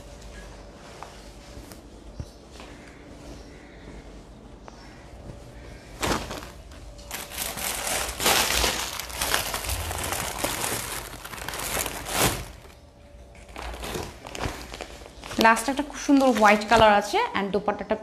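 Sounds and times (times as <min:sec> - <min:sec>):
plastic packaging crinkling: 0:06.0 - 0:16.9.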